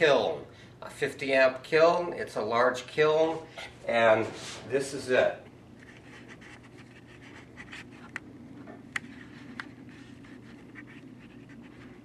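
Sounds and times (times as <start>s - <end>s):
steady low hum: 0.0s - 12.0s
faint scratchy rustling: 9.0s - 12.0s.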